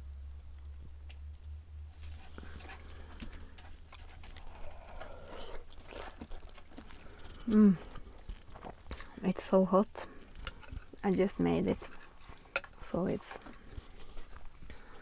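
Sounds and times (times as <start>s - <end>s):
noodles being slurped and chewed: 2.0s - 9.2s.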